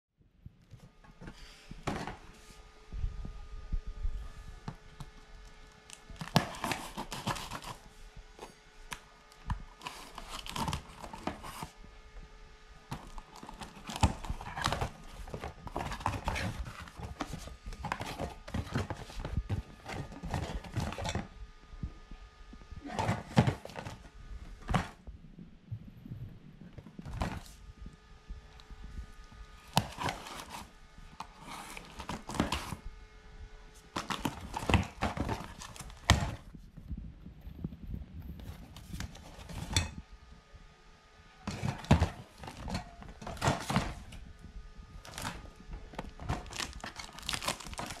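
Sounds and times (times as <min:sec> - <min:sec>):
cardboard rustling and scraping: 0:00.7 - 0:02.7, 0:05.8 - 0:11.9, 0:12.9 - 0:21.4, 0:22.8 - 0:25.1, 0:26.0 - 0:27.7, 0:28.8 - 0:32.9, 0:33.7 - 0:40.0, 0:41.4 - 0:48.0.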